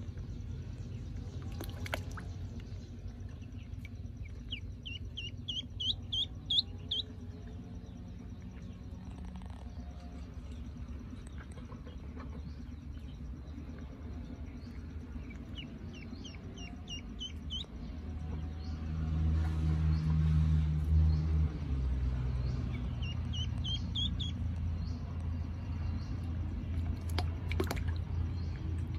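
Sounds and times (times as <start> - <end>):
low engine drone: 0.0 - 28.9
duckling peeping: 3.4 - 7.2, 14.6 - 17.8, 22.5 - 25.1.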